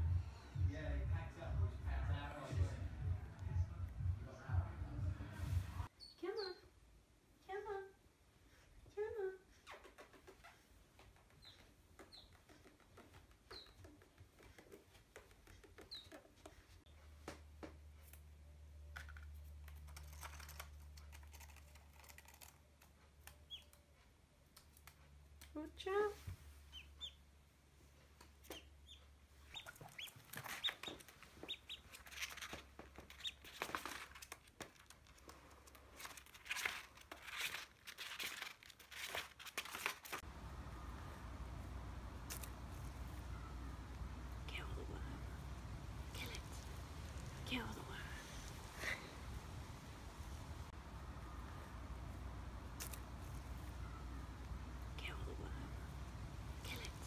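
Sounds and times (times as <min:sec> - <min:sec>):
duckling peeping: 0:11.4 - 0:12.6, 0:23.4 - 0:23.8, 0:26.7 - 0:27.2, 0:28.4 - 0:33.7
paper rustling and tapping: 0:32.0 - 0:40.2.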